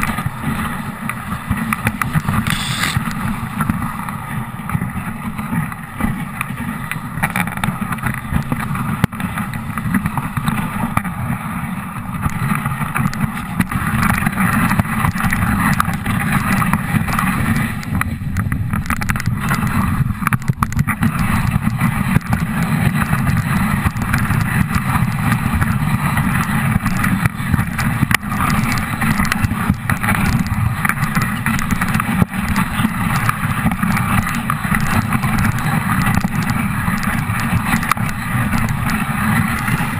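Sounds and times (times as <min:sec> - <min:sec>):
sled runners sliding over snow: 0:00.0 - 0:39.9.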